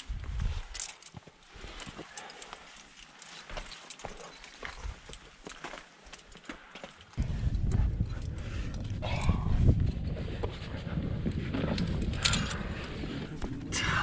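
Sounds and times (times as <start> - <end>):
wind rumbling on microphone: 0.0 - 0.8, 7.2 - 14.0
climbing gear clicks and scrapes: 0.0 - 14.0.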